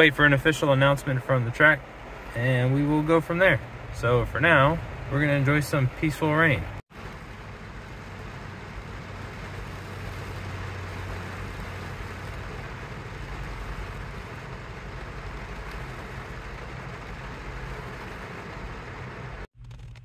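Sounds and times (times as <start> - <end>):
rain on vehicle roof: 0.0 - 20.0.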